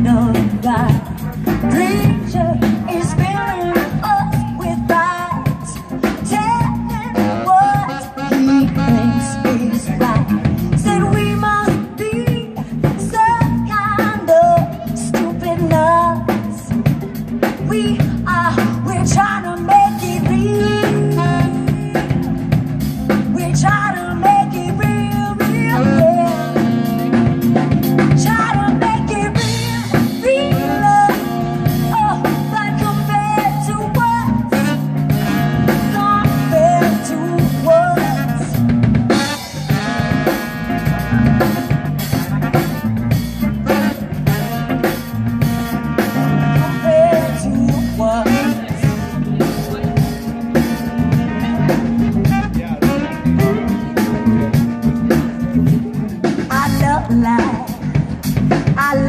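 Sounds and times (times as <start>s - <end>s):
drum kit with snare rimshots: 0.0s - 59.0s
electric bass: 0.0s - 59.0s
electric guitar: 0.0s - 59.0s
saxophones: 7.0s - 10.9s, 25.4s - 56.1s.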